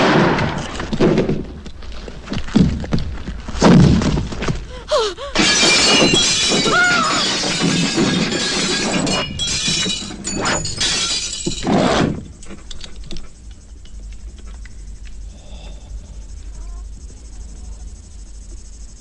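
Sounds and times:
glass windows shattering: 5.4 - 12.1.

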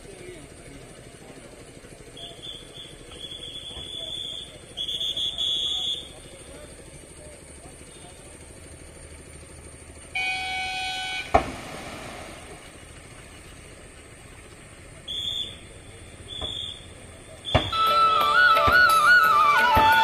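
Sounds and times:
outdoor background noise: 0.0 - 20.0
high whistle-like toots: 2.1 - 6.2, 15.0 - 20.0
horn blast: 10.2 - 11.4
sharp knock: 17.5 - 17.8.

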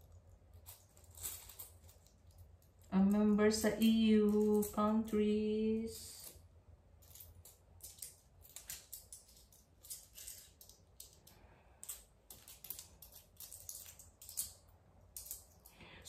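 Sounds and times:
coins clicking and clinking: 0.5 - 2.9, 7.0 - 15.7.

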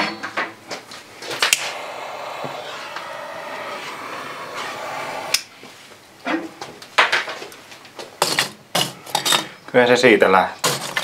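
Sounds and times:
gas lighter flame hissing: 1.4 - 5.6.

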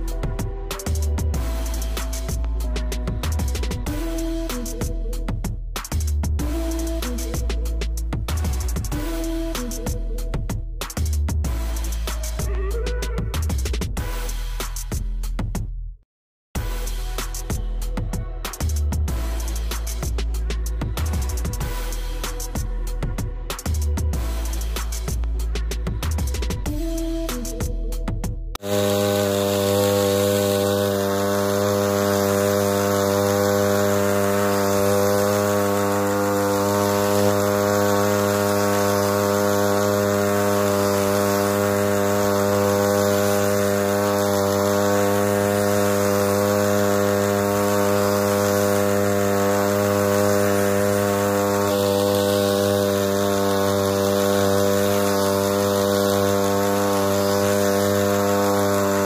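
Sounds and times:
sprayer pump motor buzzing: 0.0 - 5.0, 6.4 - 10.2, 28.6 - 59.0.

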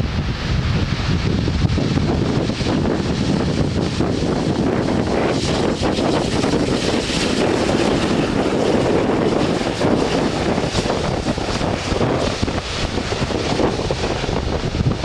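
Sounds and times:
jet engines rumbling: 0.0 - 15.0
wind buffeting microphone: 0.0 - 15.0.

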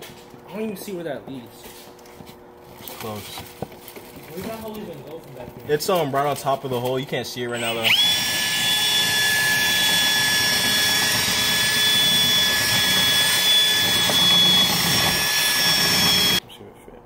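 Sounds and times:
cordless drill whining: 7.5 - 16.4.

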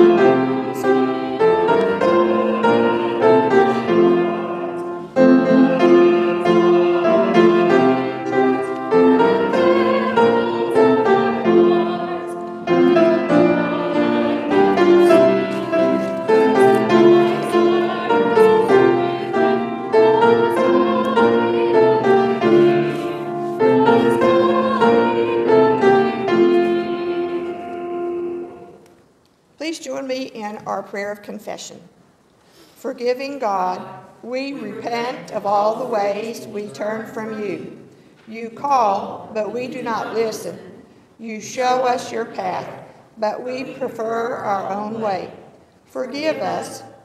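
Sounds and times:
piano playing a hymn: 0.0 - 28.9, 41.4 - 47.0.

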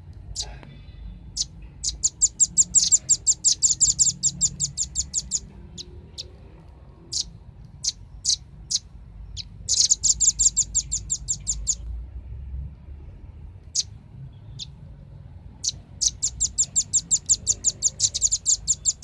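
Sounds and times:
bird chattering high notes: 1.4 - 5.9, 9.4 - 11.8, 15.6 - 19.0.

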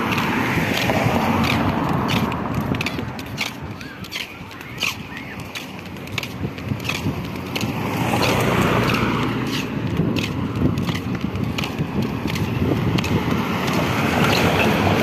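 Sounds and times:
footsteps on pavement: 0.0 - 15.0
vehicle approaching on road: 0.0 - 15.0.

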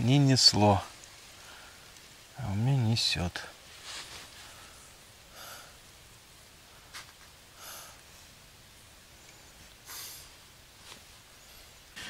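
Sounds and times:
soft breathing: 1.3 - 2.1, 3.7 - 5.9, 6.6 - 8.4.

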